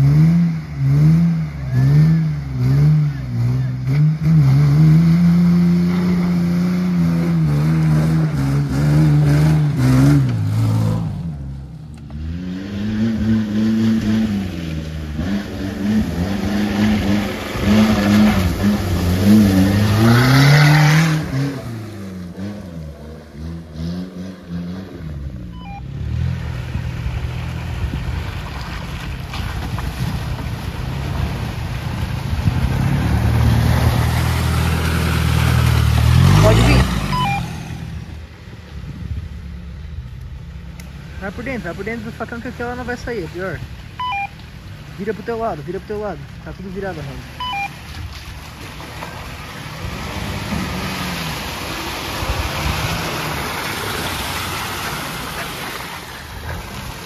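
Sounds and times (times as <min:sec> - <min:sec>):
off-road engines revving: 0:00.0 - 0:57.0.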